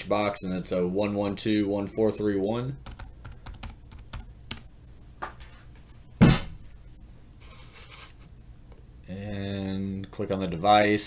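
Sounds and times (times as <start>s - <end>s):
keyboard typing: 2.8s - 4.7s.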